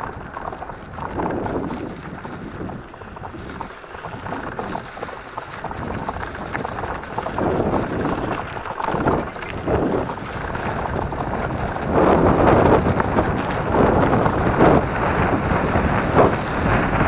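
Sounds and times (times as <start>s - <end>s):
tyres crunching on gravel: 0.0s - 15.3s
bike rattling over bumps: 0.0s - 17.0s
wind buffeting microphone: 0.0s - 17.0s.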